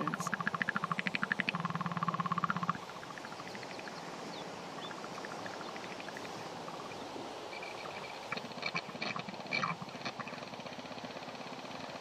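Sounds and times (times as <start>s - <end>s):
faint ticks: 7.6s - 12.0s.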